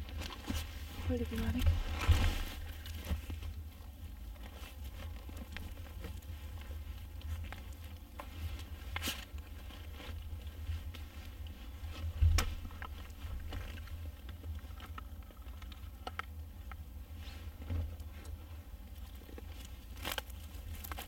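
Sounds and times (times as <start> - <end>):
dead wood rustling and knocking: 0.0 - 16.8.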